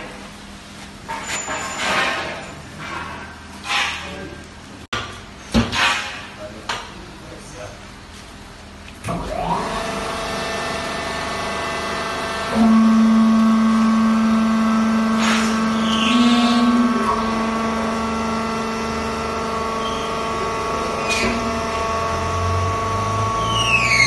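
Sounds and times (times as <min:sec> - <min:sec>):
electric motor and pump hum: 0:07.5 - 0:24.0
pump whine: 0:09.0 - 0:24.0.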